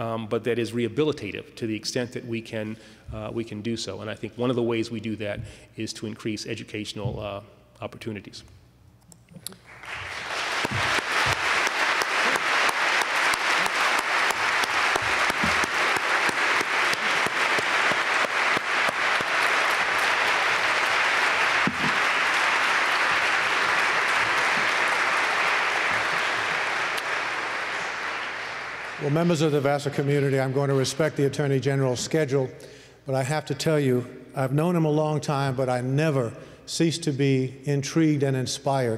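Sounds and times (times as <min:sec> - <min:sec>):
audience applauding: 0:09.6 - 0:30.9.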